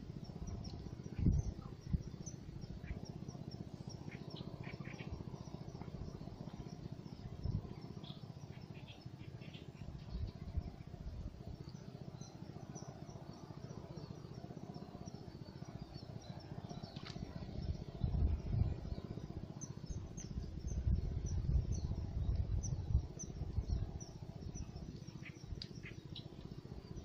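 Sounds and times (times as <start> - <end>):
low gusting rumble: 0.0 - 7.9, 9.4 - 11.6, 16.4 - 25.6
small birds chirping: 0.0 - 27.0.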